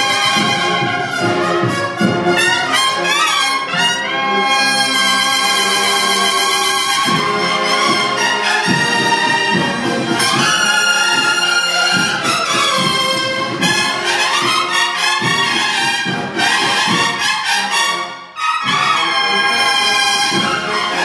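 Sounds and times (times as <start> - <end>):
steady drum beat: 0.0 - 3.1, 5.3 - 17.3, 20.0 - 21.0
bugles sounding chords: 0.0 - 21.0.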